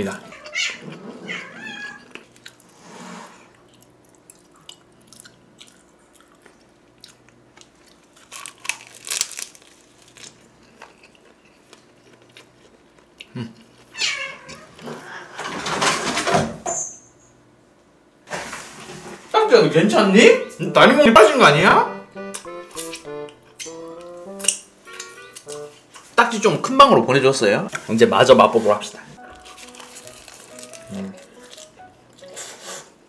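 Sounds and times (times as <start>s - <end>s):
cat meowing: 0.2s - 2.1s, 13.9s - 15.1s
man chewing: 2.0s - 2.8s, 3.5s - 13.9s, 22.2s - 26.2s, 29.2s - 33.0s.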